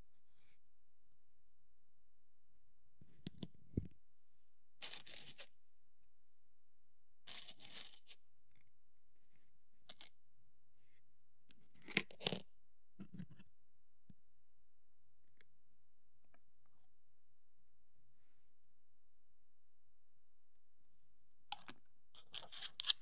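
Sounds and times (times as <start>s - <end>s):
tools scraping plastic: 22.2s - 23.0s.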